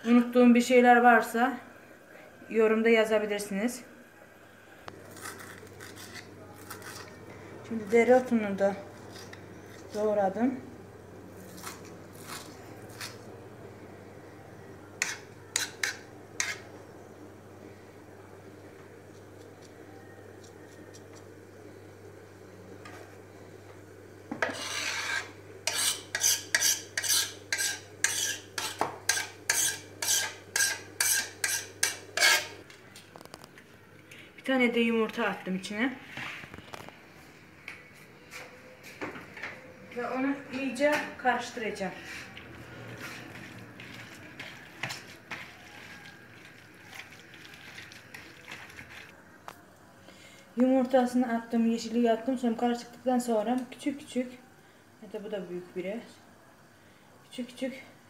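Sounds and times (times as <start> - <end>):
hand scraping herbs on cutting board: 42.0 - 49.1.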